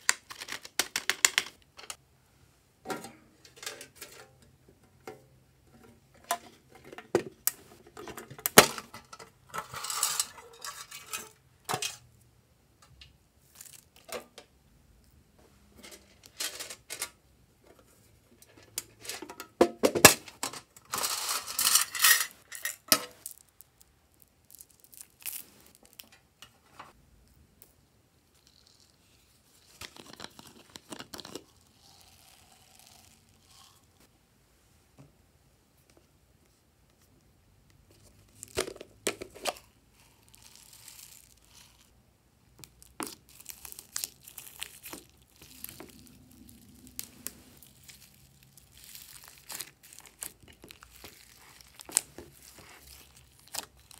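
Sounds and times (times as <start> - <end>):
plastic pieces rattling into trays: 0.0 - 1.9, 18.9 - 23.0.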